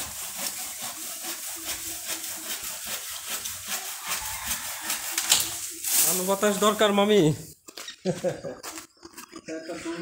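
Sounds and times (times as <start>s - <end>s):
leafy branches rustling: 0.0s - 7.5s.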